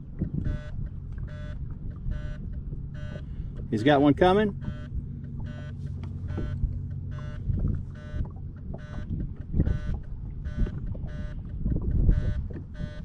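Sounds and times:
boat noise: 0.0s - 13.0s
low rumbling wind: 0.0s - 13.0s
electronic beeper beeping: 5.5s - 9.1s.

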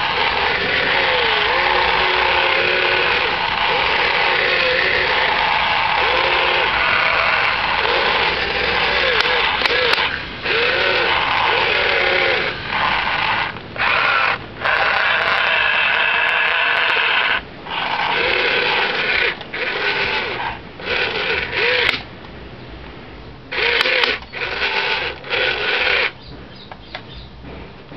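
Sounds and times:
toy excavator motors whirring: 0.0s - 22.1s, 23.5s - 26.3s.

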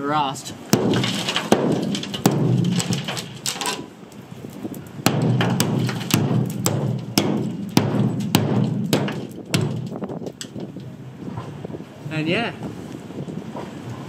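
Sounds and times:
hammer knocking on steel hull: 0.7s - 3.2s, 5.1s - 10.1s.

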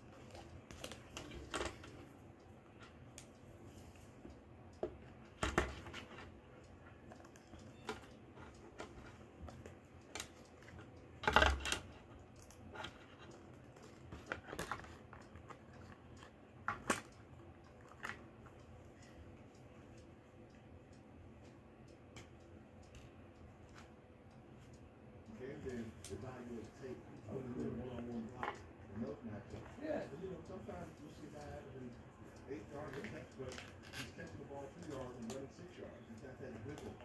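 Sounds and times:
plastic parts clicking: 7.1s - 17.2s.

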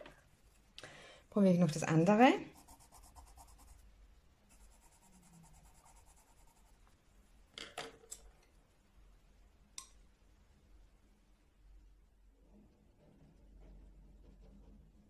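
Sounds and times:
pencil scratching on paper: 2.4s - 3.9s, 4.5s - 6.8s.

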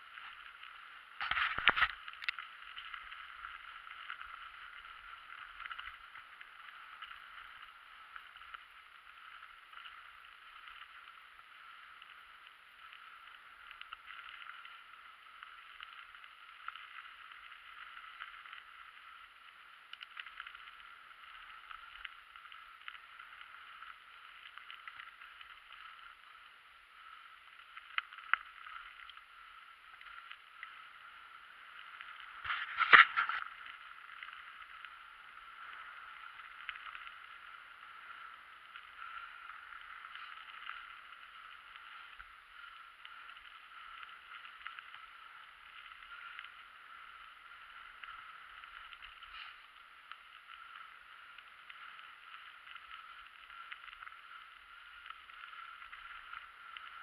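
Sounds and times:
bike tyres hissing on dirt: 20.5s - 57.0s.

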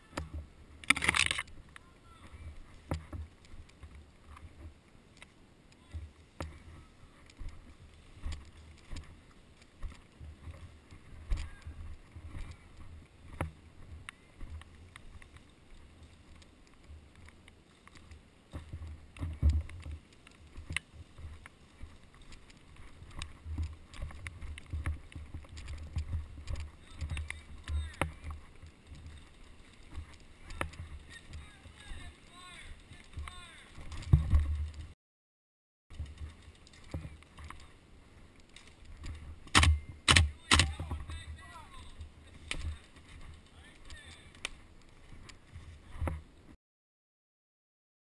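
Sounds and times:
footsteps in undergrowth: 5.9s - 35.0s, 35.9s - 46.6s
sharp clicks: 39.5s - 40.8s.

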